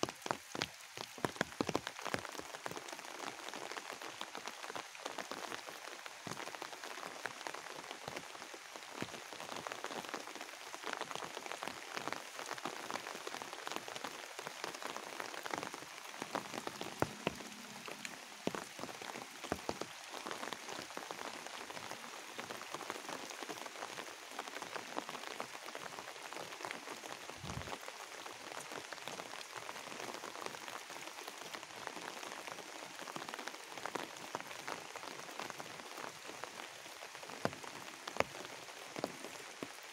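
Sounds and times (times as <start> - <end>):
rain on leaves and grass: 0.0 - 39.9.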